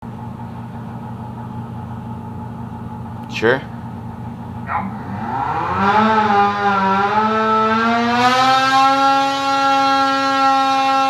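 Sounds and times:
snowmobile engine at high revs: 0:04.9 - 0:11.0.

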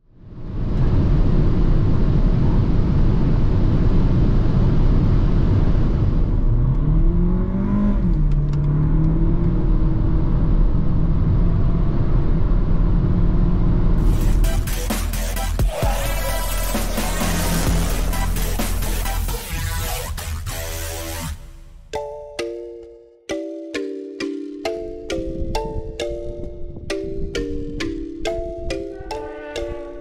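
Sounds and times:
road and tyre noise: 0:00.0 - 0:21.9, 0:24.3 - 0:30.0
car engine accelerating: 0:03.6 - 0:21.9.

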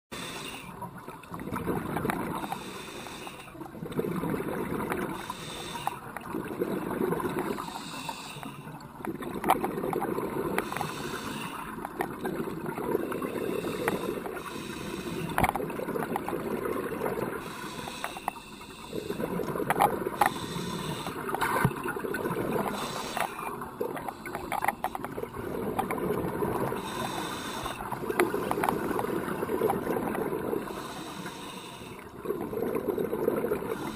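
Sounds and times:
exhaled bubbles rushing underwater: 0:00.8 - 0:02.8, 0:03.6 - 0:17.9, 0:18.8 - 0:33.9
faint clicks: 0:04.9 - 0:06.3, 0:07.3 - 0:12.4, 0:17.5 - 0:21.9, 0:22.5 - 0:30.2.

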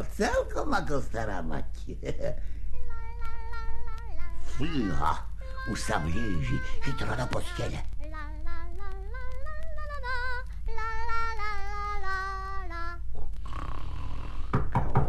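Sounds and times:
woman singing: 0:02.7 - 0:13.1.

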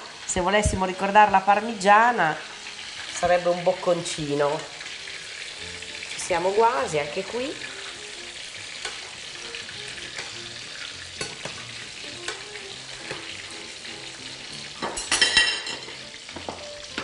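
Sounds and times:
food deep-frying in oil: 0:00.0 - 0:17.0
metal tongs clicking on pan: 0:08.8 - 0:09.1, 0:10.1 - 0:10.4, 0:11.2 - 0:13.3.

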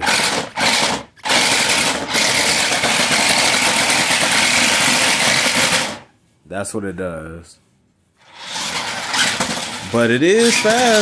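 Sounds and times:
toy car electric motors whirring: 0:00.0 - 0:06.0, 0:08.2 - 0:11.0
tyres rolling on wooden floor: 0:08.6 - 0:11.0.

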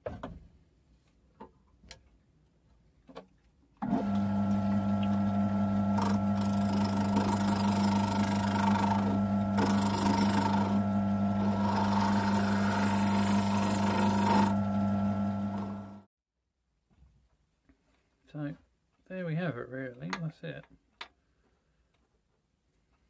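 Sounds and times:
turning tool cutting wood: 0:03.8 - 0:16.1
wood lathe motor humming: 0:03.8 - 0:16.1.

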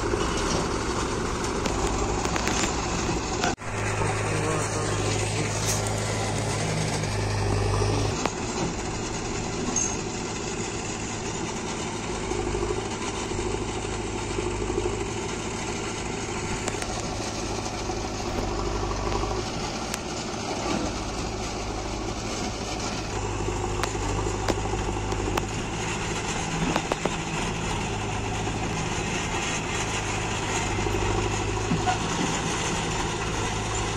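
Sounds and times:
diesel engines idling: 0:00.0 - 0:33.9.

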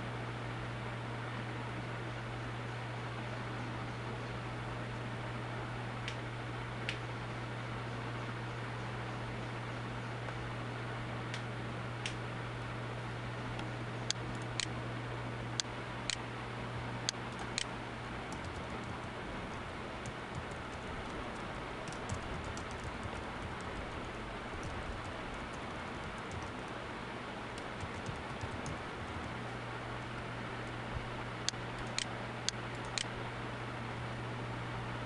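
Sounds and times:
low electrical hum and hiss: 0:00.0 - 0:35.0
keyboard typing: 0:17.3 - 0:17.7, 0:18.3 - 0:19.2, 0:20.0 - 0:26.8, 0:27.7 - 0:29.4, 0:31.8 - 0:32.1.

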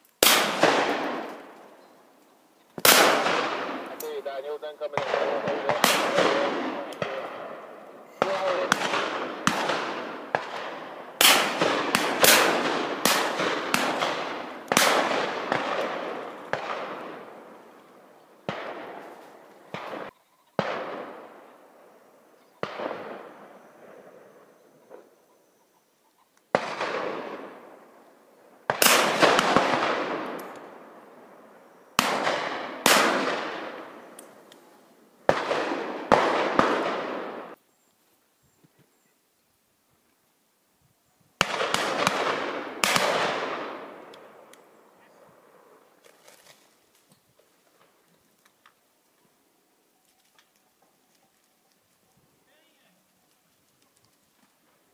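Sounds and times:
shotguns firing: 0:00.2 - 0:01.6, 0:02.8 - 0:17.6, 0:18.4 - 0:21.5, 0:22.6 - 0:24.2, 0:26.5 - 0:28.0, 0:28.6 - 0:31.0, 0:32.0 - 0:34.5, 0:35.2 - 0:37.6, 0:41.4 - 0:44.5.

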